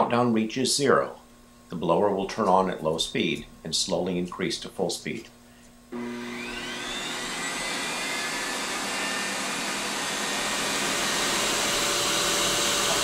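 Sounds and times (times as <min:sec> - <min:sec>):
blower whining: 0:05.9 - 0:13.0.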